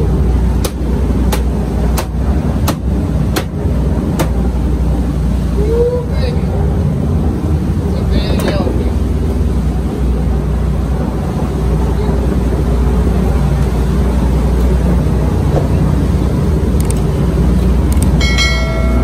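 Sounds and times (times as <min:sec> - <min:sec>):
low engine drone: 0:00.0 - 0:19.0
short ringing chime: 0:18.2 - 0:19.0.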